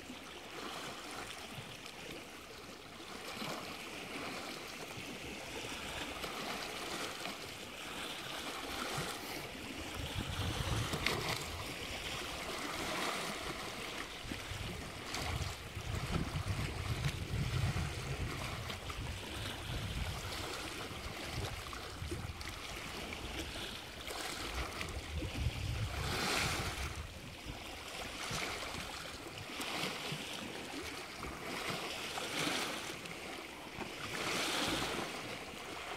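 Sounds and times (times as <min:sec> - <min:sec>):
waves washing in: 0:00.0 - 0:35.9
wind rumbling on microphone: 0:09.7 - 0:13.5, 0:14.1 - 0:29.2.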